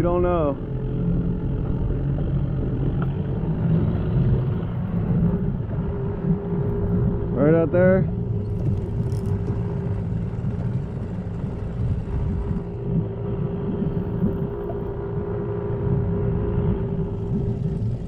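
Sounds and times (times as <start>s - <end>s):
small boat motor running: 0.0s - 18.0s
wind buffeting microphone: 1.0s - 18.0s.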